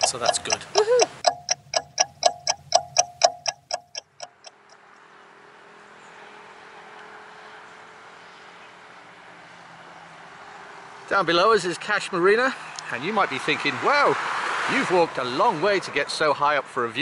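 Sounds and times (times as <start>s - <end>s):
clock ticking: 0.0s - 4.8s.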